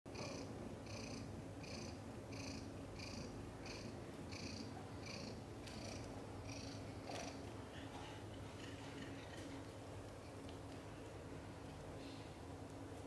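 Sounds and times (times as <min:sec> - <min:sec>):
cat purring: 0:00.1 - 0:10.4.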